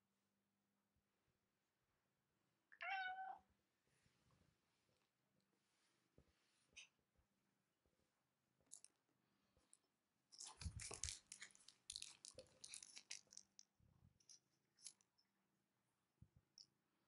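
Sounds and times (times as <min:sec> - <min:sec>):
plastic packaging crinkling: 0:10.4 - 0:13.6.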